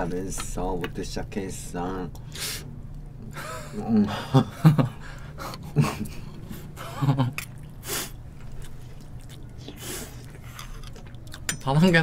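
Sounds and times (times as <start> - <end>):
breathy eating noises: 5.0 - 11.5.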